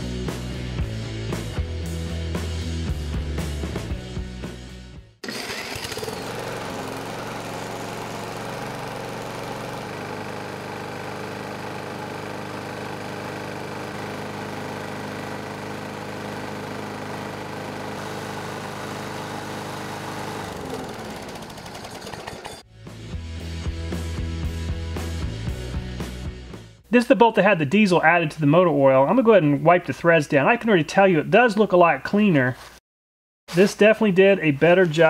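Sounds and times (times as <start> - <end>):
music: 0.0 - 5.2, 22.6 - 29.6
lawn mower engine running: 5.2 - 22.7.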